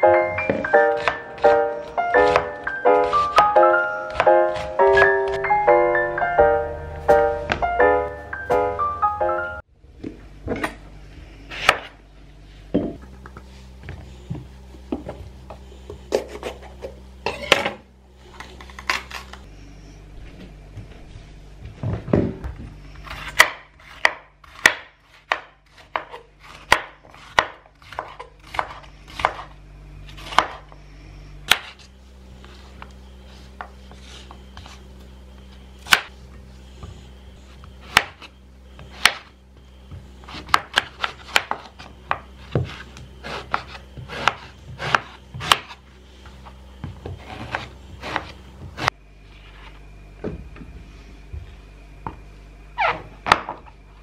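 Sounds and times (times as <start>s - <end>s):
knife chopping on wooden board: 0.5s - 1.6s, 2.2s - 3.5s, 23.1s - 29.5s, 30.2s - 30.6s, 37.9s - 39.3s, 39.9s - 45.8s.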